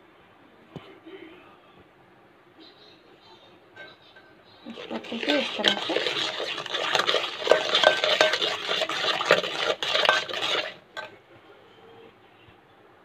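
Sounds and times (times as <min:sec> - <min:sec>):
spoon clinking against pot: 0:04.7 - 0:11.1
spoon stirring batter in metal pot: 0:04.7 - 0:11.1.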